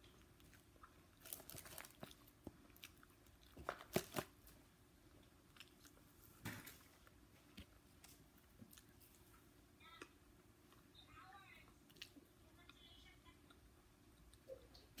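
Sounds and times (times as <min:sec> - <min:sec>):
chewing fried chicken: 0:00.0 - 0:09.6, 0:11.6 - 0:15.0.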